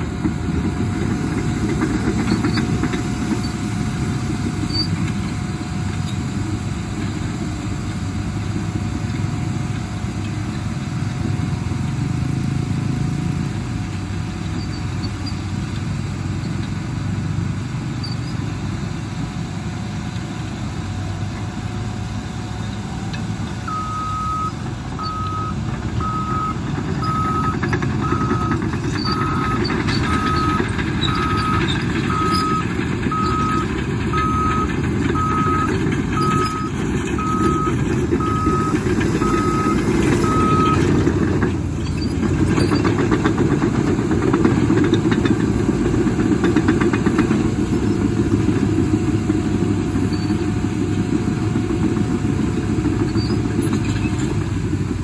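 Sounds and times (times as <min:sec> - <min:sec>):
bulldozer diesel engines: 0:00.0 - 0:55.0
reverse alarm beeping: 0:23.7 - 0:40.9
steel track clatter: 0:27.5 - 0:48.8.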